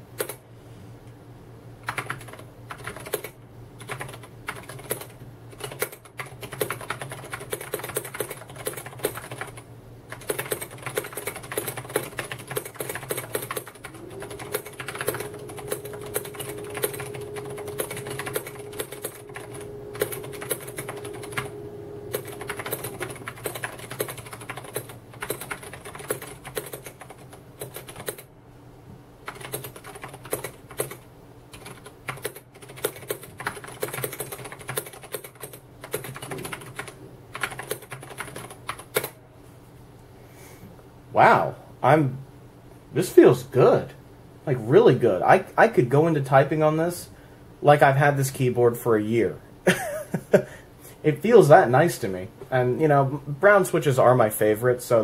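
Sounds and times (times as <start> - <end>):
mechanical keyboard typing: 0.2 - 0.4, 1.8 - 21.5, 22.1 - 28.3, 29.3 - 39.2.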